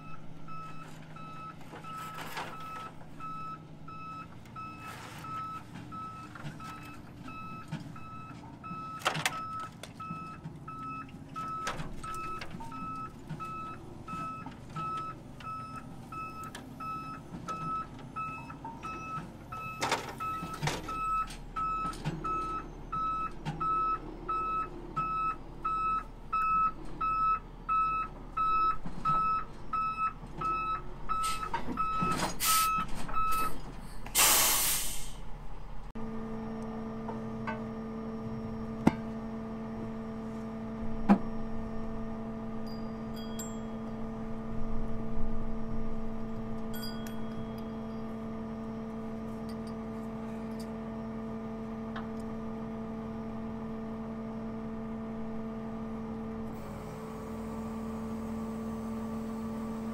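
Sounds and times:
truck engine rumble: 0.0s - 59.9s
short hisses: 34.2s - 35.2s.

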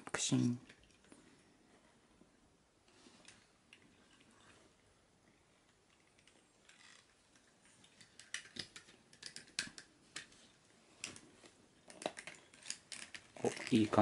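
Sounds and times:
plastic action figure joints clicking: 5.9s - 10.3s, 11.8s - 14.0s.

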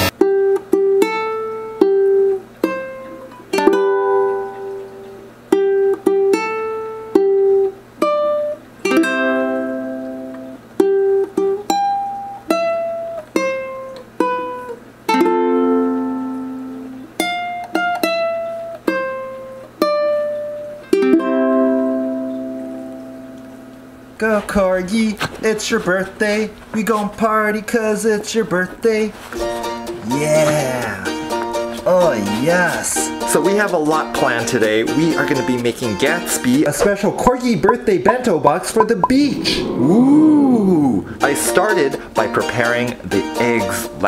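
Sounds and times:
solo ukulele melody: 0.1s - 24.0s.

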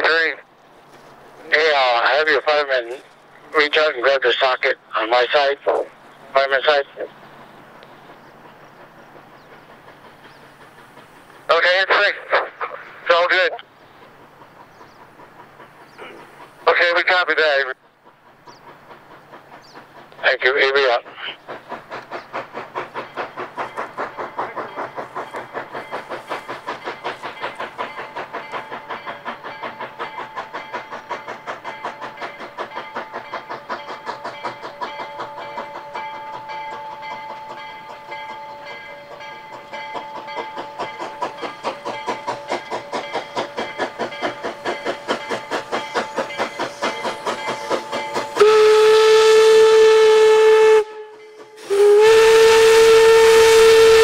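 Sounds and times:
steam locomotive chuffing: 0.0s - 54.0s
steam whistle blast: 48.4s - 54.0s.

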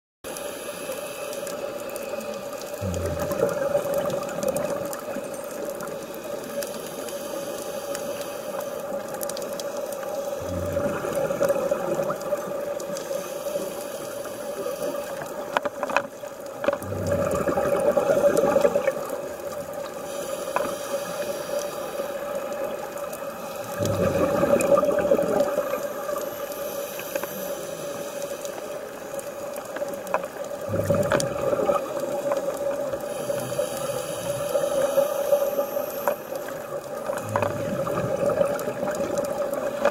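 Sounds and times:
bubbling regulator exhalations: 2.8s - 5.5s, 10.4s - 12.9s, 16.7s - 19.6s, 23.6s - 26.3s, 30.6s - 39.9s.

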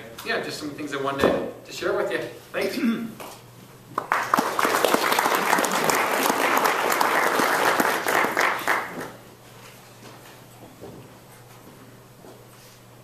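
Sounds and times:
audience applauding: 4.0s - 9.2s.

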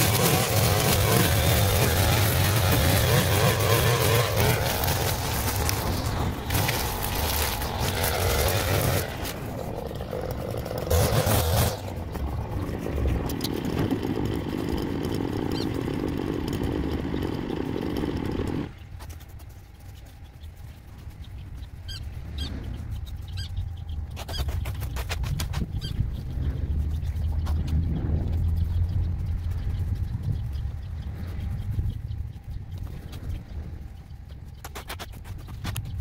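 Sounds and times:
brushcutter cutting grass: 0.0s - 18.8s.

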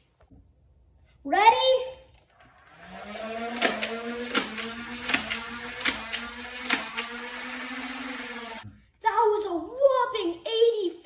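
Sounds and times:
flywheel motors whining: 2.3s - 8.7s
toy darts firing clicks: 3.5s - 8.4s.

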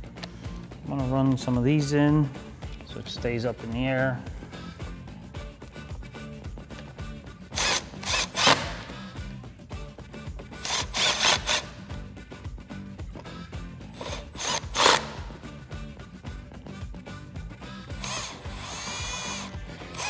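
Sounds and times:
background music: 0.0s - 20.0s
power driver running screws: 7.6s - 9.0s, 10.6s - 11.8s, 14.0s - 15.3s, 17.9s - 20.0s.

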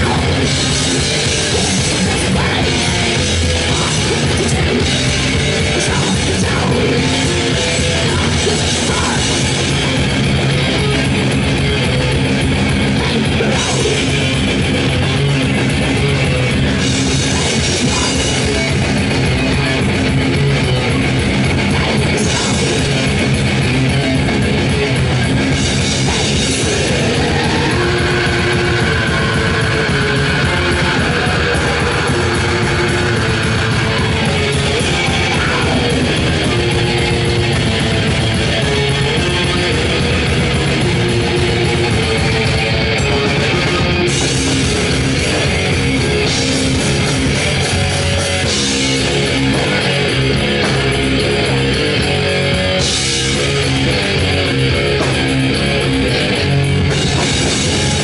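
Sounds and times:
bass guitar: 0.0s - 58.0s
distorted electric guitar: 0.0s - 58.0s
drum kit: 0.0s - 58.0s.

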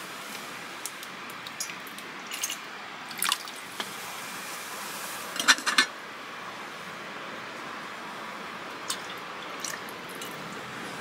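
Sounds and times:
stream water flowing: 0.0s - 11.0s
metal cup handle clinking: 5.4s - 5.9s.

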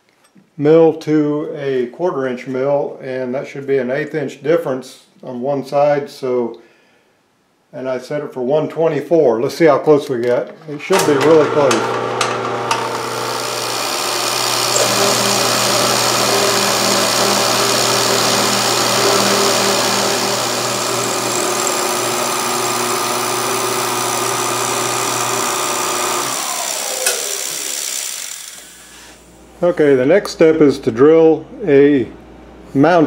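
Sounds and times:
hiss and chatter of cutting: 10.9s - 29.3s
milling machine motor hum: 10.9s - 29.3s
spindle motor winding down: 10.9s - 29.3s.

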